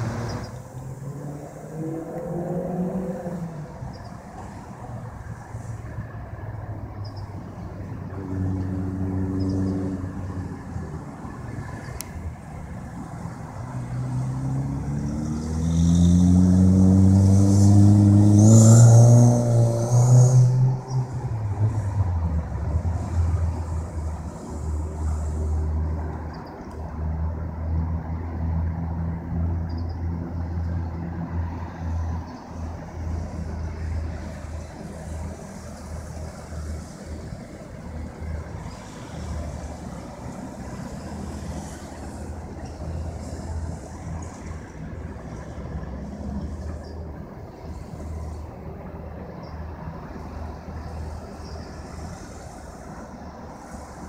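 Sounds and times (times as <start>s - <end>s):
vehicle engine accelerating: 0.0s - 4.5s, 13.2s - 26.3s
cars passing: 0.0s - 54.0s.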